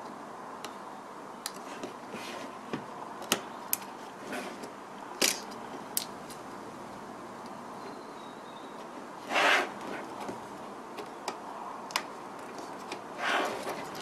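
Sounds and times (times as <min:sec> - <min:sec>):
plastic clicks and snaps: 0:11.0 - 0:13.0.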